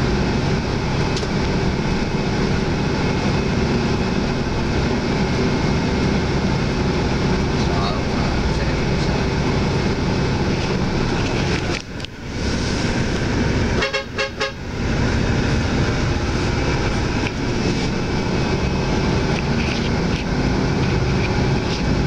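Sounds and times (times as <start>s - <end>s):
bus engine drone from inside: 0.0s - 22.0s
vehicle horn toots: 13.8s - 14.6s.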